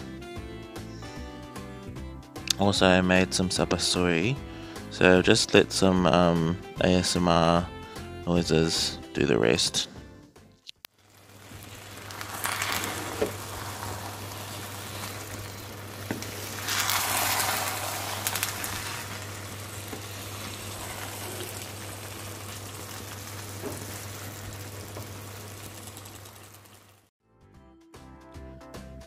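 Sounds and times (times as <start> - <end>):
food sizzling and bubbling in pot: 10.9 - 27.1
wooden spoon stirring: 11.3 - 22.6.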